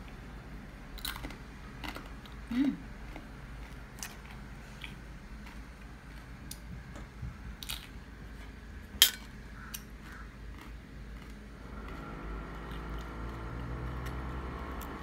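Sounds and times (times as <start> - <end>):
eating crunches: 0.9 - 6.7, 7.6 - 8.6, 9.6 - 14.2.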